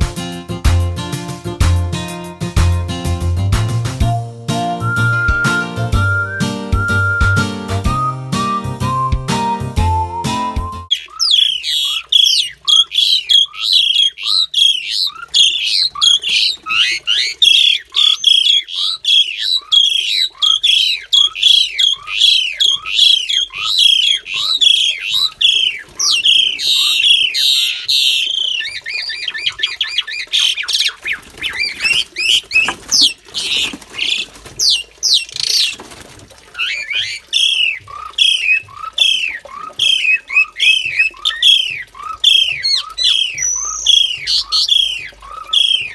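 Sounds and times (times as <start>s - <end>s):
starlings calling harshly: 10.9s - 35.8s, 36.6s - 45.9s
birds scuffling and flapping: 11.1s - 45.9s.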